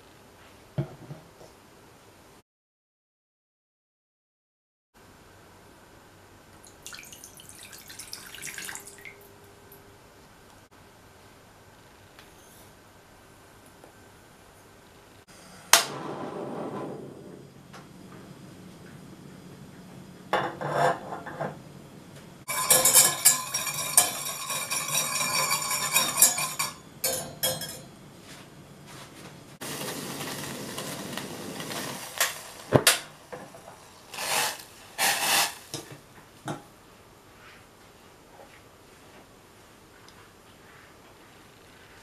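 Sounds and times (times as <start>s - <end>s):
pan knocking on wire trivet: 22.5s - 27.8s
whisk clinking in a metal saucepan: 22.5s - 27.9s.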